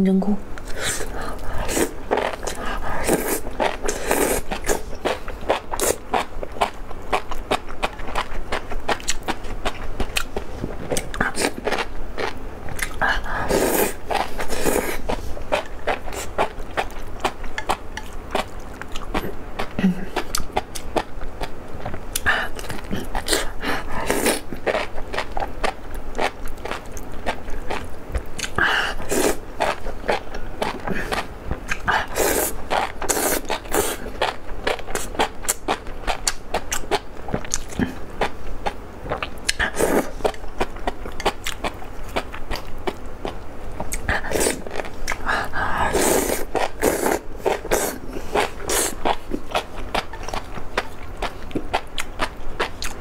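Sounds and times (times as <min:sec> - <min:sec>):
wet chewing and smacking: 0:01.4 - 0:13.0, 0:29.2 - 0:45.3, 0:46.4 - 0:53.0
loud slurping: 0:31.9 - 0:34.1, 0:45.8 - 0:49.2.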